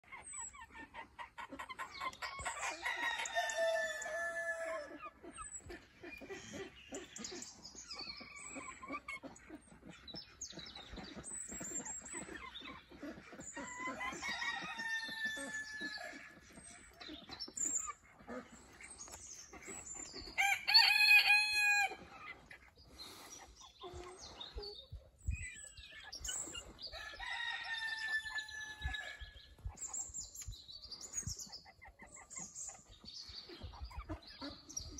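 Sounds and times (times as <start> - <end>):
chicken clucking: 0.0 - 34.9
roosters crowing: 2.6 - 5.0, 13.8 - 16.3, 20.4 - 22.0, 26.9 - 29.3.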